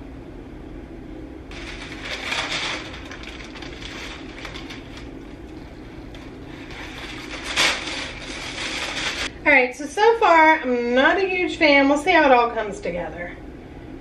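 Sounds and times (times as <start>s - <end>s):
low steady hum: 0.0s - 14.0s
parchment paper crinkling: 1.5s - 9.3s.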